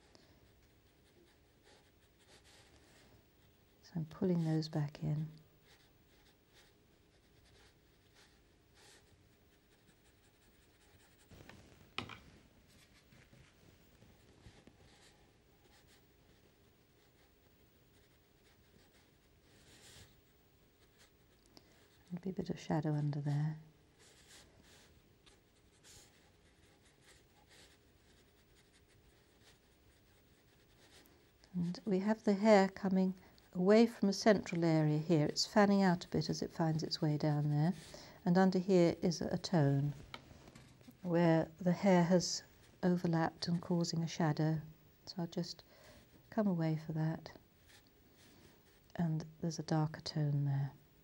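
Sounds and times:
brush scratching on paper: 0.0 - 3.6, 5.6 - 11.4, 12.7 - 22.2, 24.0 - 31.9
brush tapping plastic palette: 11.4 - 12.2.

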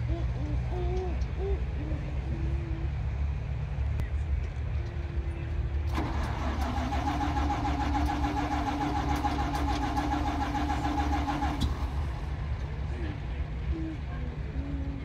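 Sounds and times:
starter motor cranking engine: 5.8 - 12.3
steady low rumble: 8.8 - 15.0.

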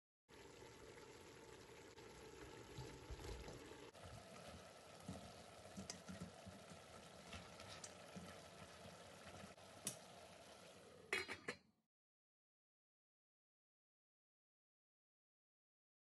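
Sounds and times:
faint steady sizzle: 0.3 - 11.6.

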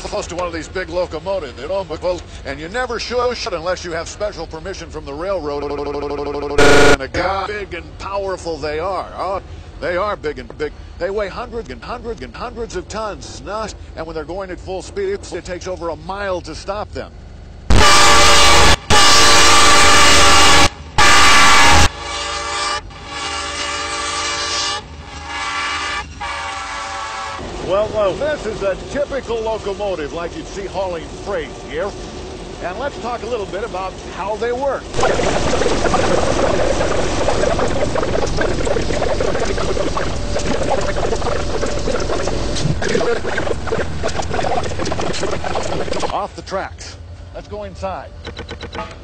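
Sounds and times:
diesel locomotive running: 0.0 - 5.9, 6.5 - 49.0
locomotive air horn blasts: 6.6 - 7.1, 17.7 - 27.5, 48.7 - 49.0.

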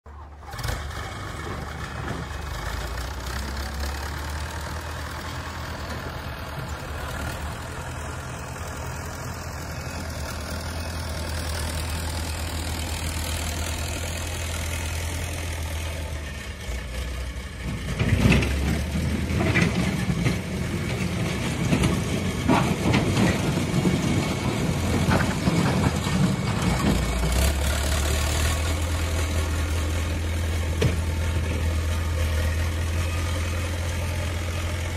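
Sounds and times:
diesel engine running: 0.1 - 34.9
loader bucket clanks and rattles: 0.5 - 9.0, 17.5 - 34.9.

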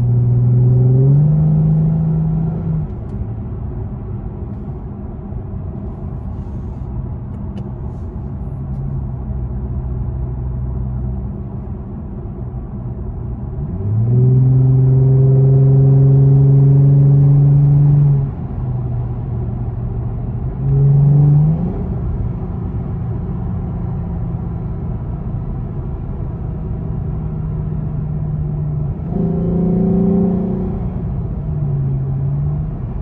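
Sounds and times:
car engine revving from inside cabin: 0.0 - 3.2, 13.4 - 19.1, 20.2 - 24.5, 27.2 - 33.0.

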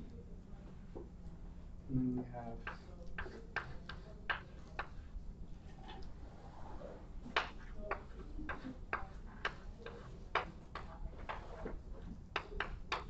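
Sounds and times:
chalk tapping on blackboard: 2.5 - 5.1, 7.2 - 13.0.

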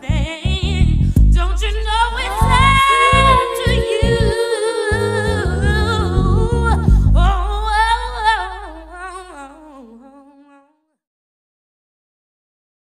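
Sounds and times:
sung vocals: 0.0 - 10.7
bass-heavy hip-hop beat: 0.3 - 4.4.

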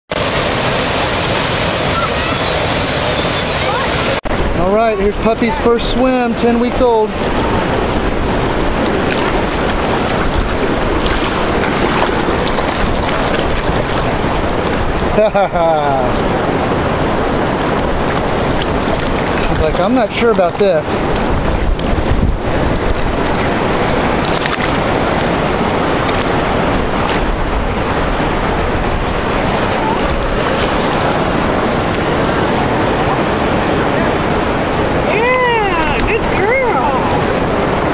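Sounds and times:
wind blowing across microphone: 0.1 - 37.9
splashing in shallow water: 5.6 - 37.9.

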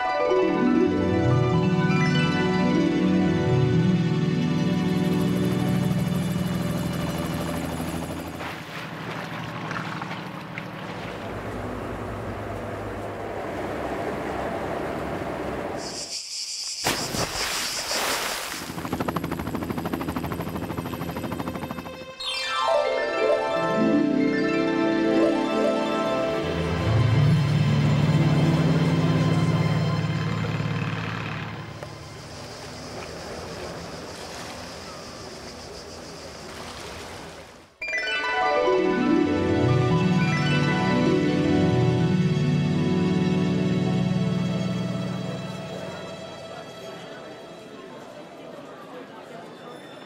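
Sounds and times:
music: 0.0 - 8.2, 19.2 - 32.3, 37.8 - 48.6
motorboat engine: 3.6 - 15.8, 26.8 - 37.1
water rushing and splashing: 8.4 - 15.8, 17.0 - 18.8, 36.3 - 37.7.

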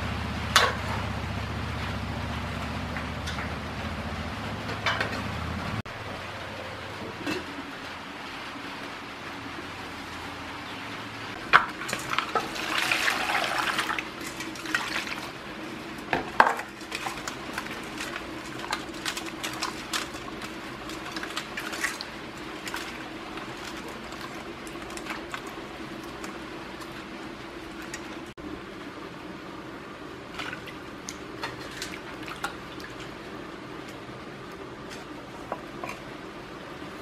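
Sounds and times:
water splashing in a metal bowl: 11.5 - 28.4, 30.2 - 34.0.

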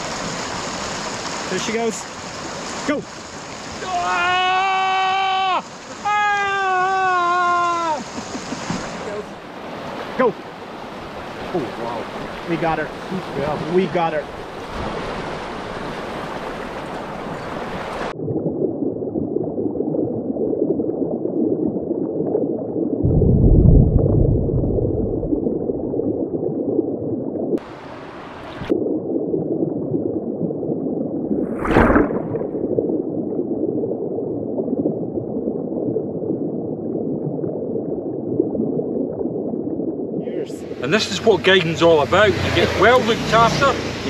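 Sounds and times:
bright river rush: 0.0 - 4.5, 5.6 - 18.1, 40.2 - 44.0
muffled underwater river rushing: 0.0 - 44.0
deep rumble: 18.1 - 27.6.

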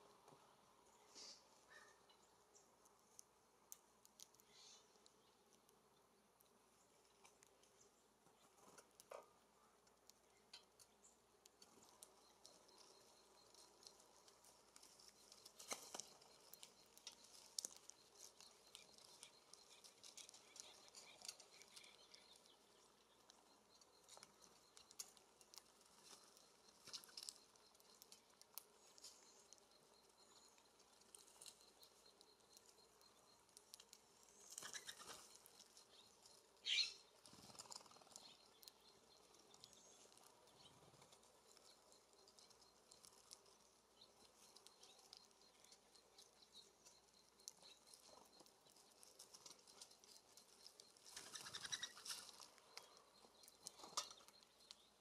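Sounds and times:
bird pecking seed cake: 0.0 - 55.0
rustle of bird wings: 14.8 - 20.3, 34.4 - 35.4, 51.0 - 52.5.

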